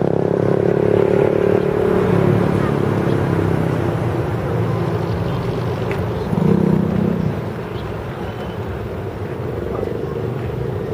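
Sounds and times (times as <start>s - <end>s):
distant jet engine rumble: 0.0s - 10.9s.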